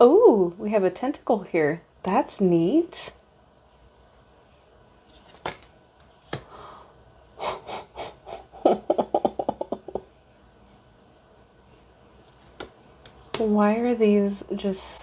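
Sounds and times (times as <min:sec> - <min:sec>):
cards tapping and sliding: 0:05.1 - 0:06.5, 0:12.3 - 0:13.5.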